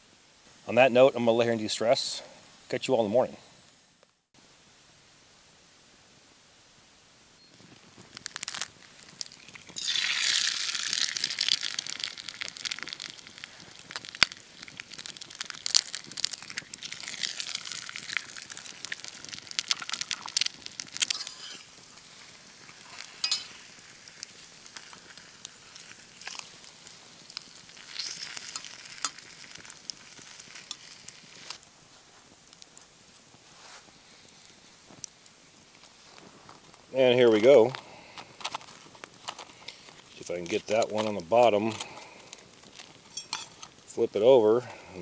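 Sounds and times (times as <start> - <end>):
eggs sizzling in skillet: 7.5 - 45.0
fork scraping pan: 21.0 - 21.7, 22.8 - 23.6, 43.1 - 43.7.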